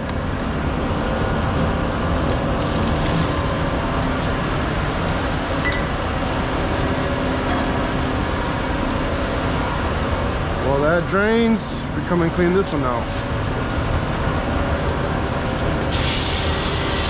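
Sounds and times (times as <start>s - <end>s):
diesel truck engine running: 0.0s - 17.0s
wash of noise: 0.0s - 17.0s.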